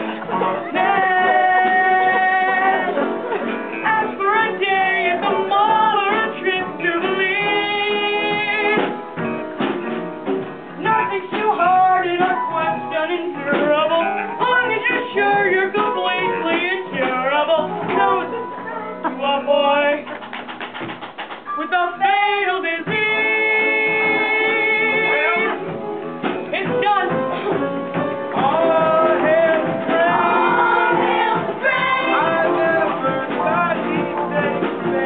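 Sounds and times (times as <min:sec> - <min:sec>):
young voices singing: 0:00.0 - 0:08.9, 0:21.5 - 0:25.6, 0:28.3 - 0:35.0
band accompaniment: 0:00.0 - 0:35.0.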